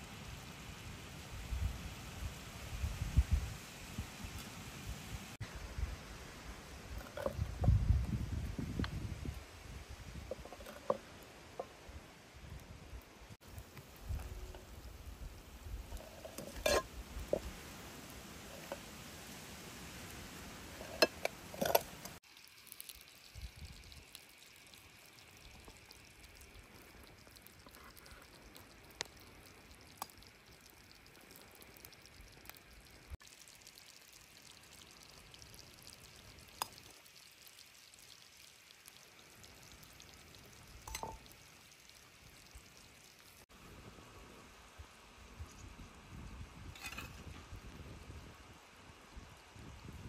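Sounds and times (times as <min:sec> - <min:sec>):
low cooking hiss: 0:00.0 - 0:50.0
kitchen utensils clinking: 0:16.3 - 0:16.9.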